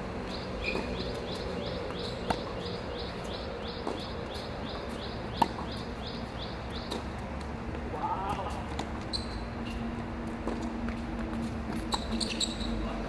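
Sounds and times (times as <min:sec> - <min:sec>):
racket hitting tennis ball: 0:00.6 - 0:02.7, 0:03.8 - 0:05.8.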